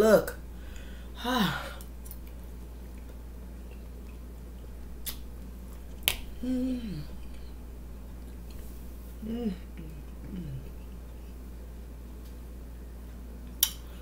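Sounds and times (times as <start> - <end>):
low electrical hum: 0.0 - 14.0
person humming mmm: 6.3 - 7.6, 9.2 - 11.0.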